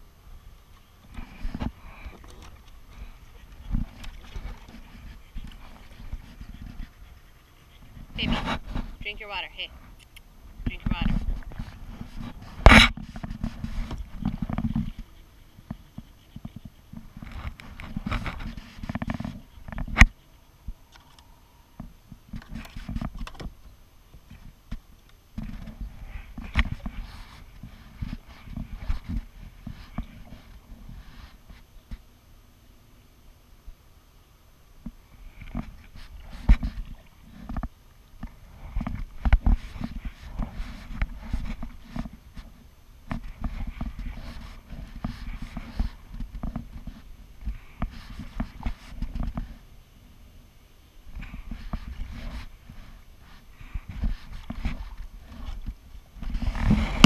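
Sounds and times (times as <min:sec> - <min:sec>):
low rumble of paddling: 0:00.0 - 0:57.0
paddle splashing water: 0:00.6 - 0:09.4.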